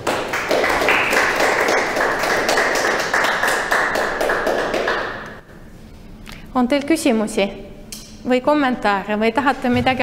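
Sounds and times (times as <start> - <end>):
audience applause: 0.0 - 5.2.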